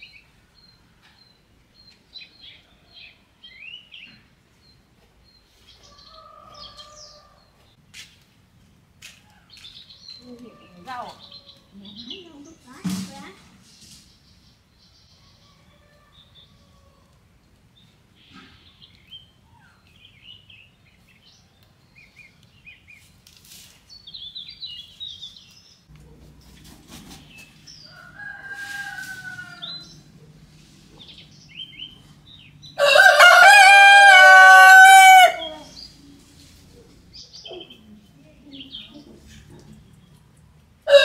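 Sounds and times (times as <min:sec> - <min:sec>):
rooster crowing: 0:15.3 - 0:17.1, 0:27.9 - 0:30.0, 0:32.8 - 0:35.7.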